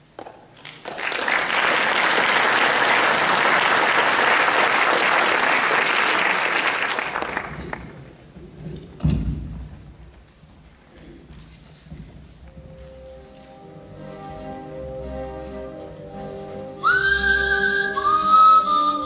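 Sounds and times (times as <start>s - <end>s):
audience applauding: 0.6s - 8.1s.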